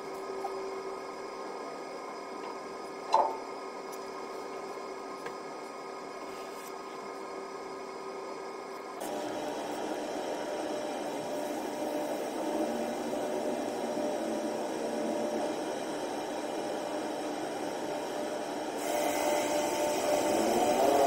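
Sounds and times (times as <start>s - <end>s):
ship machinery drone: 0.0s - 21.0s
hiss: 18.7s - 21.0s.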